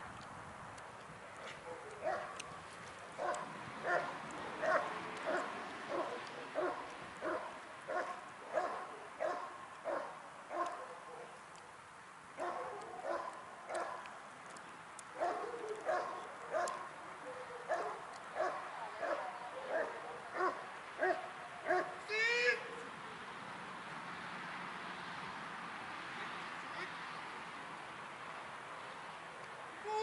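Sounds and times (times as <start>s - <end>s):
dog barking: 1.5s - 2.4s, 3.2s - 11.3s, 12.4s - 14.0s, 15.2s - 22.0s.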